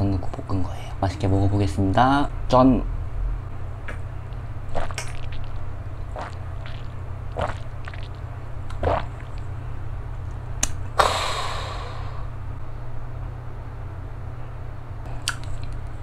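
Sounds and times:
low steady hum: 0.0 - 16.0
man swallowing: 3.8 - 9.4, 11.0 - 12.3
breathy exhale: 11.0 - 12.4.

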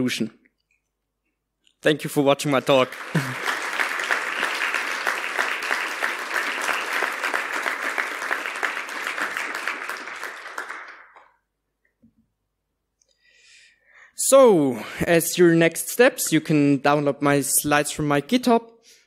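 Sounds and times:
audience applauding: 2.3 - 11.4.

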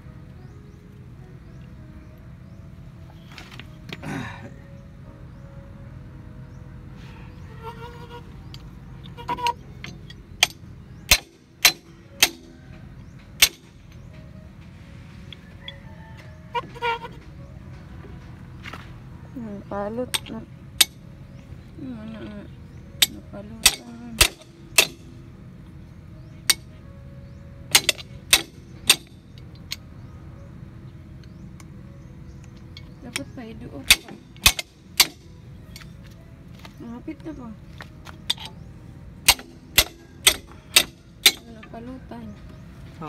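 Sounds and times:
ringing metal clang: 8.4 - 14.3, 20.0 - 21.4, 22.0 - 25.6, 26.2 - 30.1, 32.3 - 36.0, 38.2 - 42.6.

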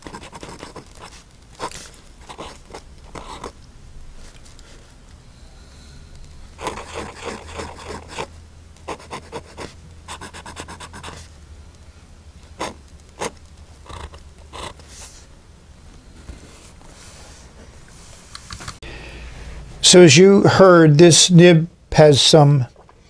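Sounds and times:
pen nib scratching on paper: 0.0 - 3.6, 6.6 - 11.3, 12.5 - 15.0.

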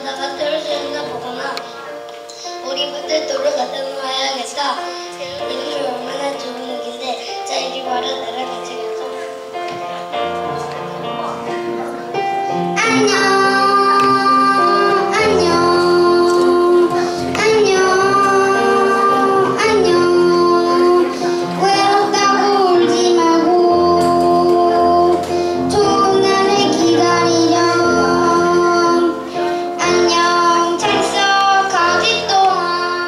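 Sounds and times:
child singing: 0.0 - 1.8, 2.4 - 9.5, 12.7 - 33.0
instrumental accompaniment: 0.0 - 33.0
woman singing: 12.8 - 33.0.

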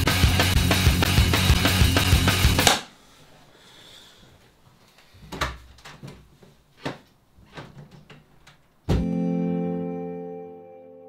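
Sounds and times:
strummed guitar chord: 8.9 - 11.0.

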